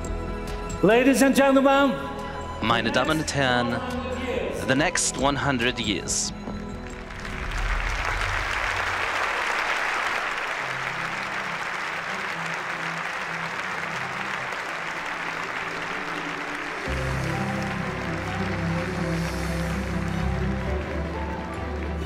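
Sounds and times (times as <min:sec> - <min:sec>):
music playing: 0:00.0 - 0:22.0
audience applauding: 0:06.8 - 0:22.0.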